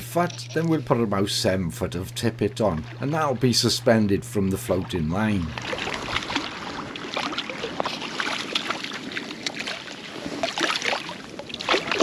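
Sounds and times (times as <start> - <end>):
fish splashing at water surface: 5.5 - 12.0.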